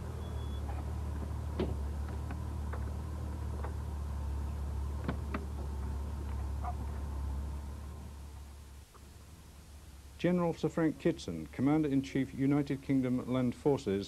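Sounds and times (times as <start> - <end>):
light clicks and knocks: 0.7 - 3.8
car door opening: 5.0 - 5.9.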